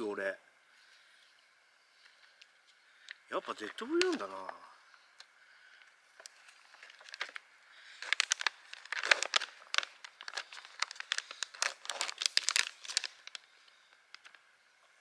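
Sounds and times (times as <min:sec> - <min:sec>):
plastic packet crinkling: 0:06.1 - 0:14.4.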